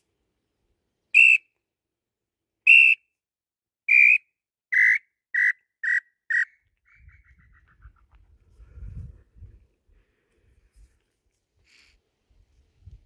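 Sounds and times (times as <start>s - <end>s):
whistled bird call: 1.2s - 1.5s, 2.7s - 3.0s, 3.9s - 7.7s.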